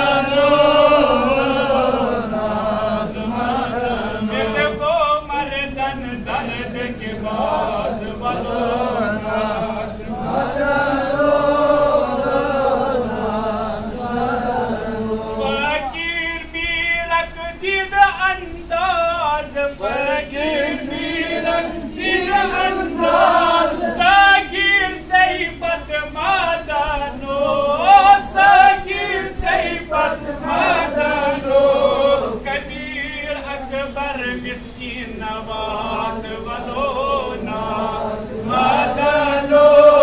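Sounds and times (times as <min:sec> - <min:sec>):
man chanting melodically: 0:00.0 - 0:12.7, 0:14.8 - 0:29.8.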